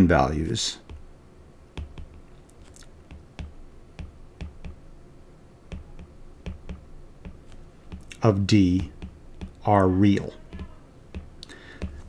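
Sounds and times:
stylus tapping on glass screen: 0:00.8 - 0:01.1, 0:01.7 - 0:02.3, 0:03.0 - 0:04.8, 0:05.7 - 0:09.7, 0:10.4 - 0:12.0.

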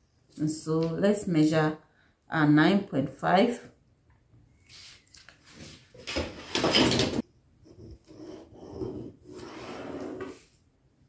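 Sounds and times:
metal ruler sliding across paper: 0:08.1 - 0:10.5.

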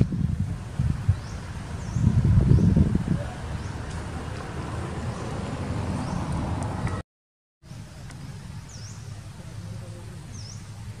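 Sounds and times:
wind rumbling on microphone: 0:00.0 - 0:07.0.

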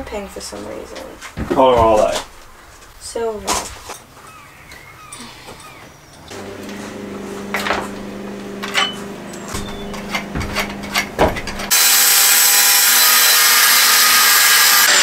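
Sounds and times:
angle grinder grinding metal: 0:06.3 - 0:15.0
low steady hum: 0:06.4 - 0:11.7
hand tool clicking and scraping: 0:08.5 - 0:11.9.

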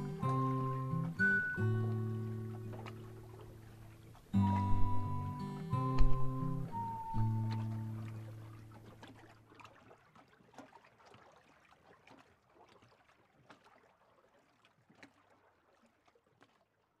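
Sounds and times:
acoustic guitar chord: 0:00.0 - 0:03.2, 0:04.4 - 0:08.2
lake water lapping: 0:00.0 - 0:17.0
small clicks and splashes: 0:01.8 - 0:04.9, 0:07.4 - 0:17.0.

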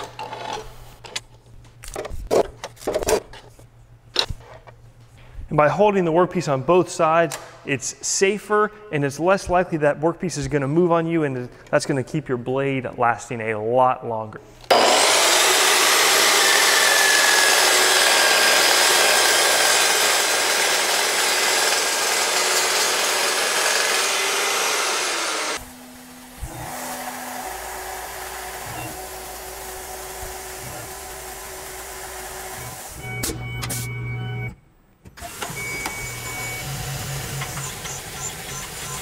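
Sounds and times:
chop saw cutting metal: 0:14.7 - 0:32.8.

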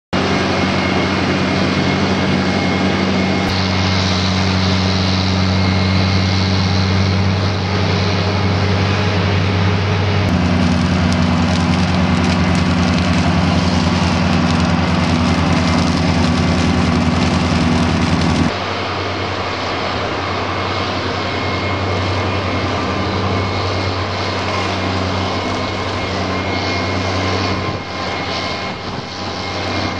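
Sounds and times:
harvester engine drone: 0:00.2 - 0:29.9
machinery clatter: 0:10.3 - 0:18.6.

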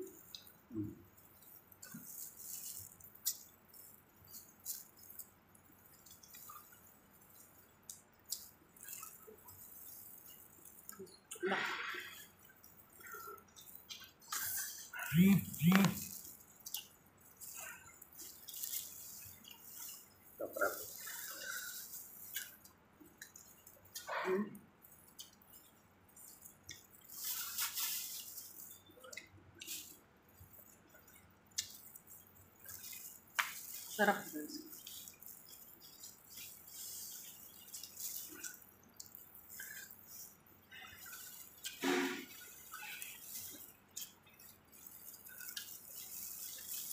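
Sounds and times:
wet crackle: 0:00.0 - 0:46.9
wet squishes and clicks: 0:00.1 - 0:11.4, 0:12.0 - 0:46.9
rustling: 0:24.9 - 0:46.9.

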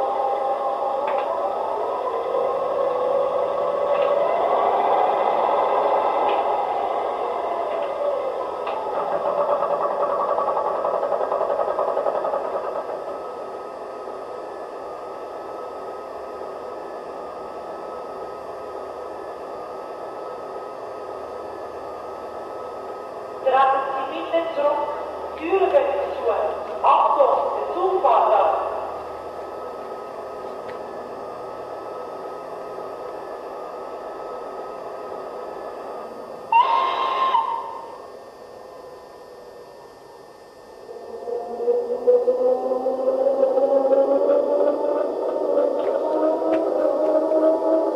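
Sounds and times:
model locomotive hissing hum: 0:00.0 - 0:47.9
rhythmic mechanical chatter: 0:00.0 - 0:47.9
locomotive whistle blast: 0:36.5 - 0:38.0.

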